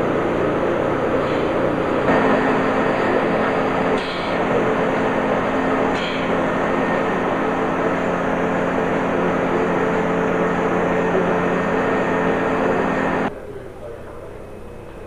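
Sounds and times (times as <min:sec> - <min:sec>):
hum tones: 0:00.0 - 0:15.0
machine drone with hiss: 0:00.0 - 0:15.0.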